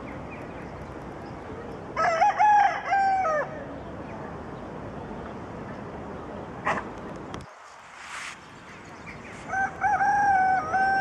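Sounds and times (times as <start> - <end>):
steady background hiss: 0.0 - 11.0
rooster crowing: 2.0 - 3.6, 9.5 - 11.0.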